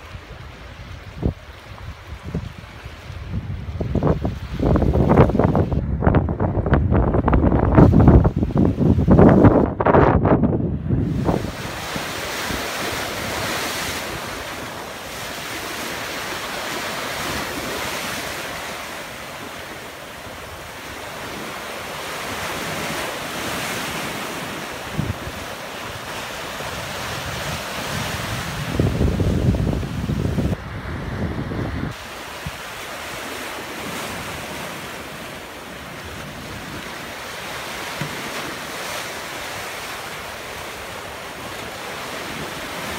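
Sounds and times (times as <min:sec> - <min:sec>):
wind buffeting microphone: 0:00.0 - 0:39.9
waves washing against rocks: 0:11.0 - 0:42.9.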